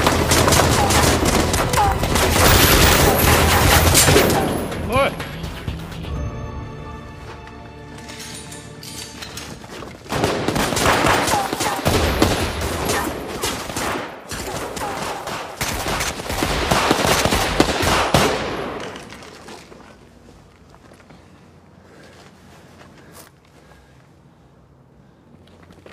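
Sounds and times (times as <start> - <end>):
rapid gunfire: 0.0 - 4.8, 10.1 - 18.8.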